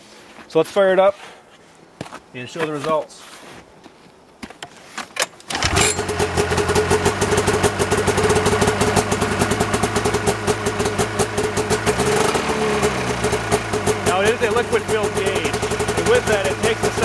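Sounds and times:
snowmobile engine starting and idling: 0:05.5 - 0:17.0.

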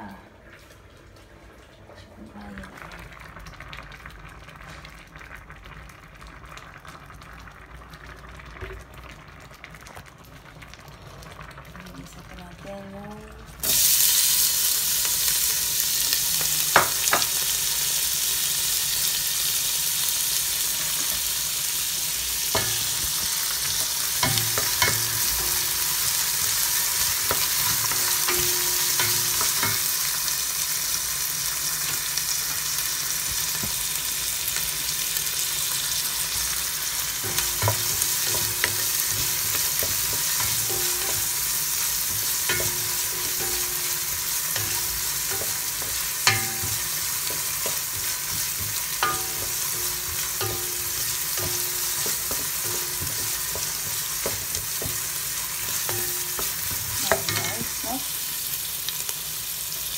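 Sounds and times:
food sizzling in hot oil: 0:03.1 - 0:59.9
wooden spoon knocking pot: 0:27.3 - 0:29.9, 0:37.2 - 0:57.9.

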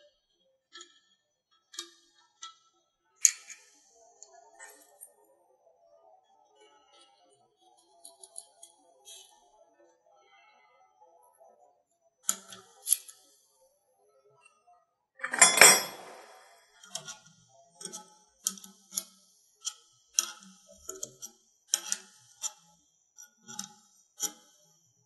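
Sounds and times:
spanner clicking on metal fitting: 0:15.2 - 0:16.4.

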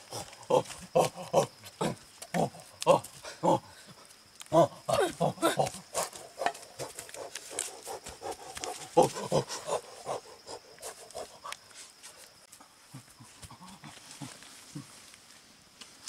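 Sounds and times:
man grunting: 0:00.1 - 0:03.7, 0:04.5 - 0:05.8, 0:08.9 - 0:09.8.

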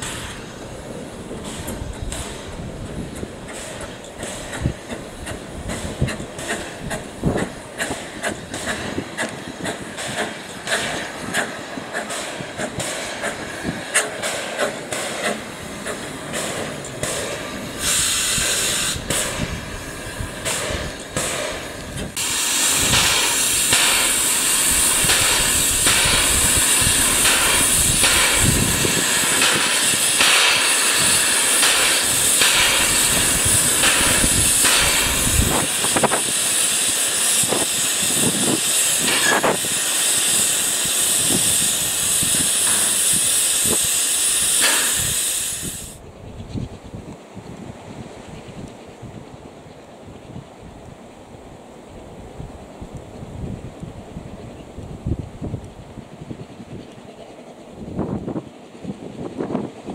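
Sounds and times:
steam hissing: 0:00.0 - 0:46.0
clicks and knocks of train wheels: 0:00.0 - 0:51.2, 0:52.6 - 0:59.9.

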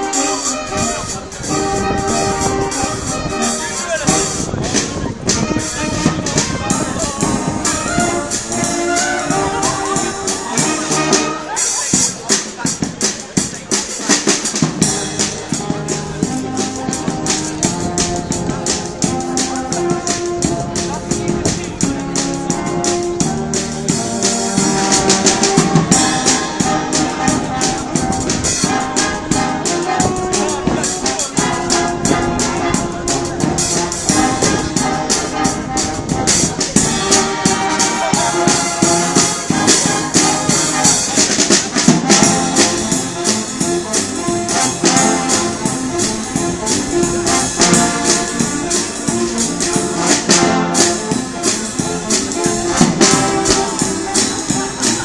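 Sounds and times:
brass band playing upbeat tune: 0:00.0 - 0:55.0
drum and percussion beat: 0:00.0 - 0:55.0.

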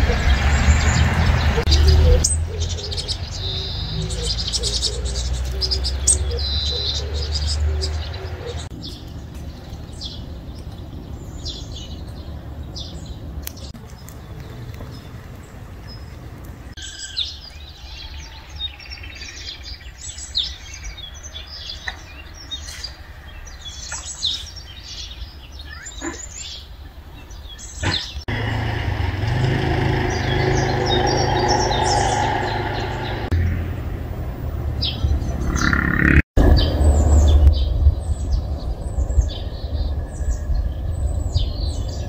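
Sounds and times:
small birds chirping: 0:00.0 - 0:33.5, 0:34.3 - 0:42.0
low outdoor rumble: 0:28.3 - 0:42.0.

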